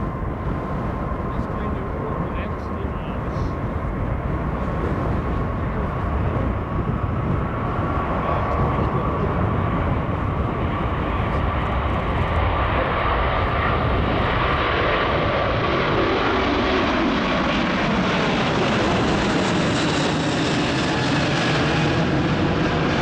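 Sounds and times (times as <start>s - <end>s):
jet engines at takeoff: 0.0s - 23.0s.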